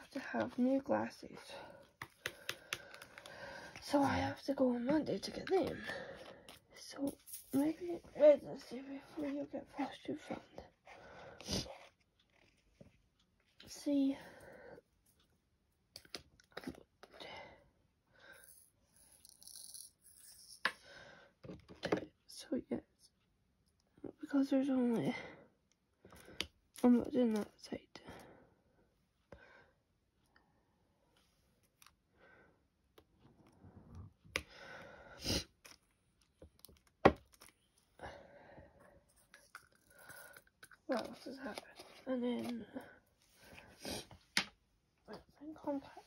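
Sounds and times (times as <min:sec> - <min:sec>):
small clicks and scrapes: 0:11.6 - 0:13.6.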